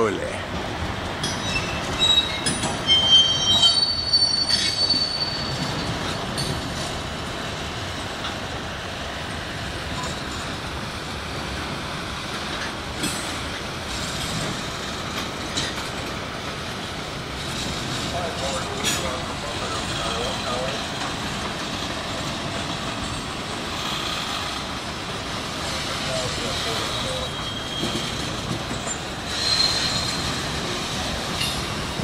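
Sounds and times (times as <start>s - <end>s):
freight train rolling on rails: 0.0s - 32.0s
train wheel squeals: 1.2s - 6.8s, 25.8s - 32.0s.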